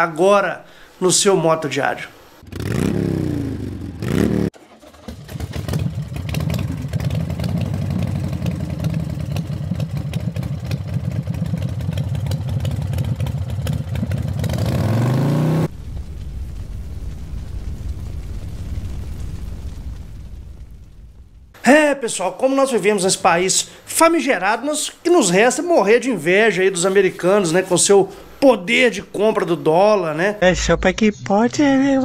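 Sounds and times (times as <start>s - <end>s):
motorcycle engine revving: 2.4s - 15.7s.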